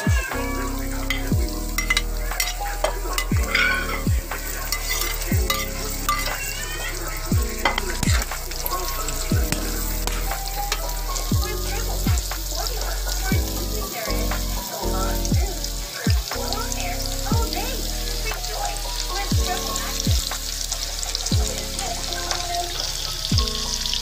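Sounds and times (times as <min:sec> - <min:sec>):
food sizzling in hot oil: 0:00.0 - 0:24.0
spatula scraping a wok: 0:01.8 - 0:06.4.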